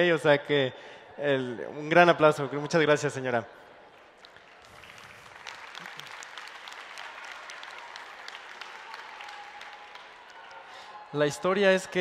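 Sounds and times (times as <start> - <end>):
audience applauding: 4.0 - 12.0.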